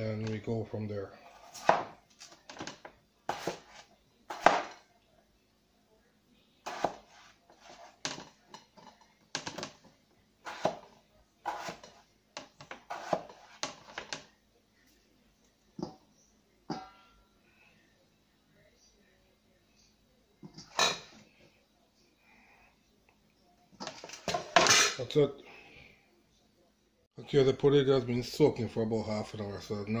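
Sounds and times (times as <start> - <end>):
knife cutting on plastic board: 3.3 - 4.7, 6.7 - 7.9, 10.5 - 12.0, 12.7 - 14.1.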